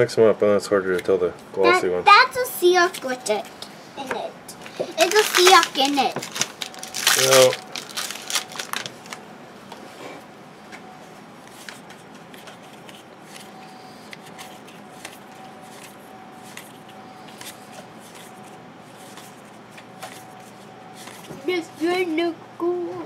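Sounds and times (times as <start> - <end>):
paper cards rustling and clicking: 4.6 - 9.2, 11.4 - 21.4.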